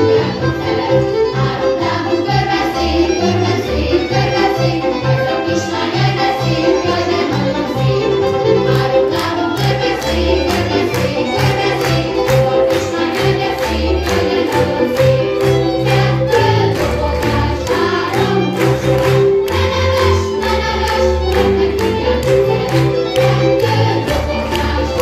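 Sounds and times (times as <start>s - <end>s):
children singing together: 0.0s - 25.0s
folk music with fiddle: 0.0s - 25.0s.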